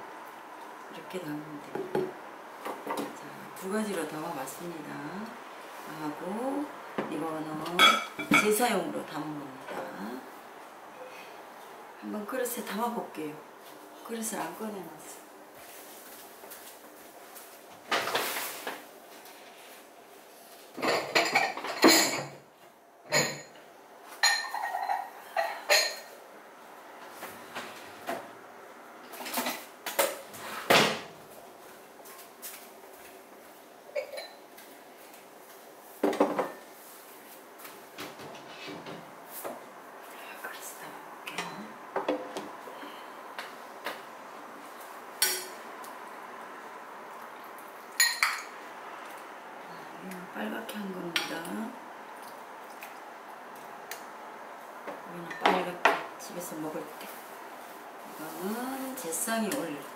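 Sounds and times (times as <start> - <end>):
dishes clinking and clattering: 7.7 - 8.6, 20.8 - 22.4, 23.1 - 23.6, 24.2 - 26.1, 47.9 - 48.6.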